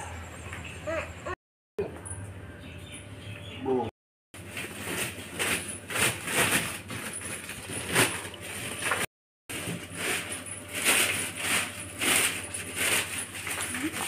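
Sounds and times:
plastic sack rustling: 4.4 - 14.0.

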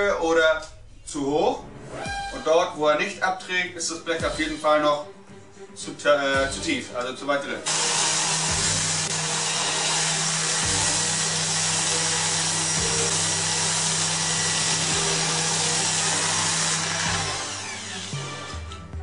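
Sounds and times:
orbital sander on sheet metal: 7.7 - 18.6.

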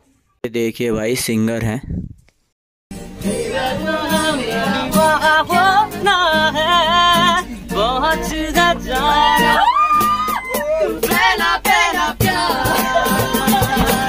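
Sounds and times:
acoustic guitar strumming: 2.9 - 14.0
man singing: 3.2 - 9.6, 12.0 - 14.0.

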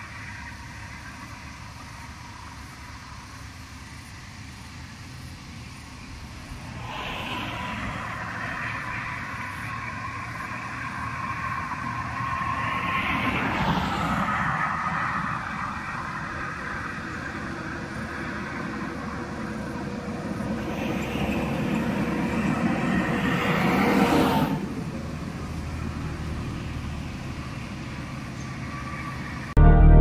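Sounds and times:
traffic passing: 0.0 - 30.0
vehicle passing close: 6.2 - 30.0.

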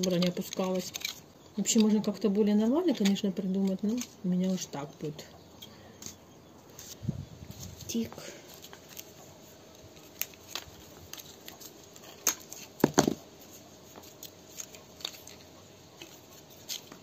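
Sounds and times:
screwdriver clicking and scraping: 0.0 - 2.2.

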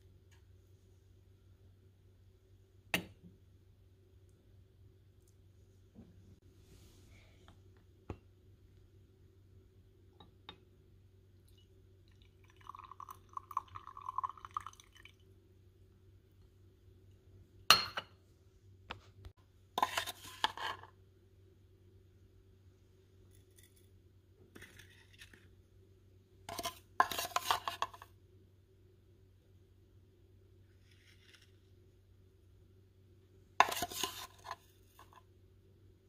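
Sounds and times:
water trickling into metal pot: 11.4 - 15.2
spoon scraping and clinking: 19.8 - 20.9, 24.6 - 25.5, 26.5 - 28.0, 33.6 - 35.2.

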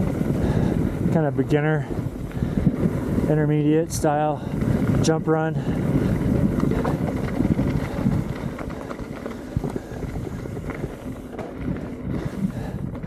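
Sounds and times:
bike clicks and rattles: 0.0 - 13.0
bike tyres rumbling on dirt: 0.0 - 13.0.

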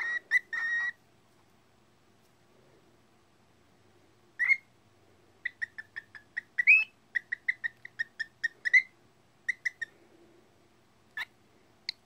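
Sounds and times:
cockatiel chirping: 0.0 - 1.0, 4.4 - 4.7, 5.4 - 9.9, 11.1 - 12.0.

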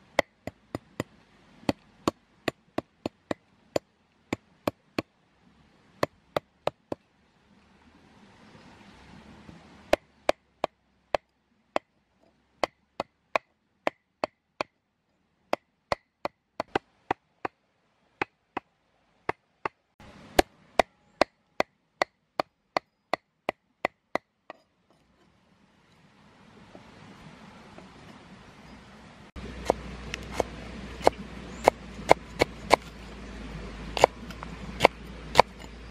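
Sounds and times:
knife chopping on wooden board: 29.6 - 33.0, 34.0 - 35.7.

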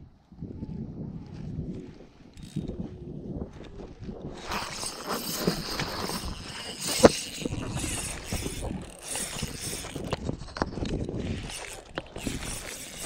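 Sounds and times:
fishing reel cranking: 2.3 - 3.0, 4.2 - 13.0.

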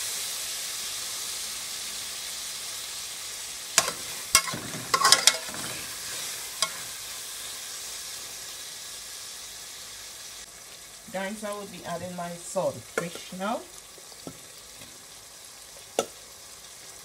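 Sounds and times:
vegetables sizzling in oil: 0.0 - 17.0
metal spoon scraping pot: 3.8 - 6.8.

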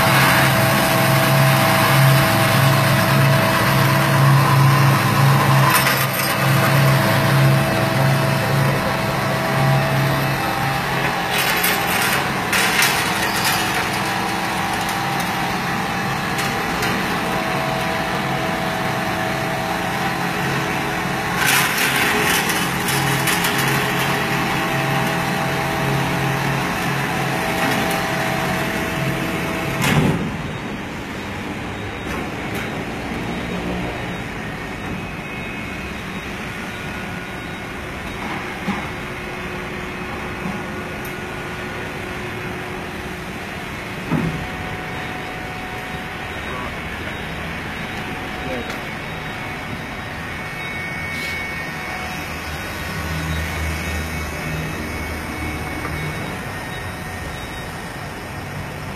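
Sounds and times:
band saw humming: 0.0 - 29.8.

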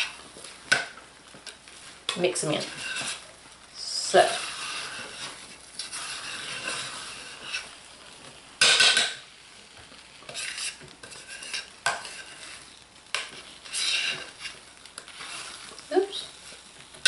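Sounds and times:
spatula scraping thick paste: 2.5 - 3.3, 4.2 - 7.8, 10.3 - 15.8.

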